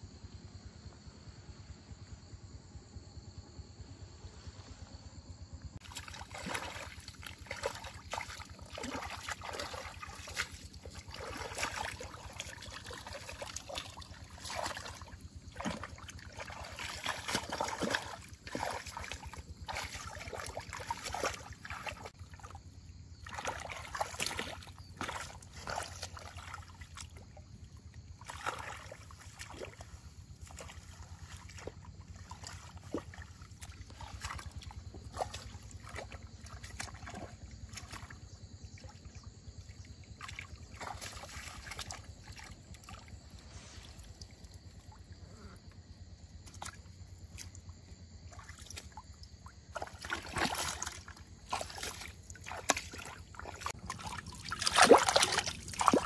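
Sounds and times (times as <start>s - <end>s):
shallow water sloshing: 5.8s - 56.0s
small splashes and knocks: 5.8s - 56.0s.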